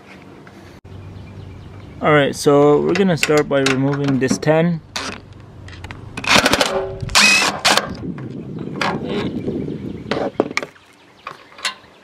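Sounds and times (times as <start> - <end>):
cordless drill whining: 7.1 - 7.6.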